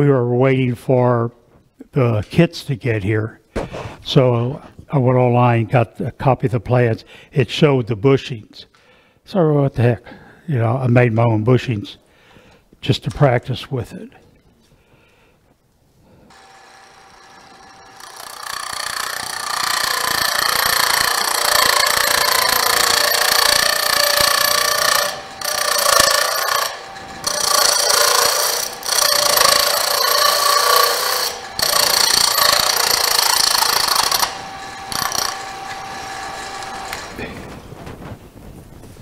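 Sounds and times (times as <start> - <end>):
lathe motor whine: 16.3 - 37.6
lathe tool cutting wood: 16.3 - 37.6.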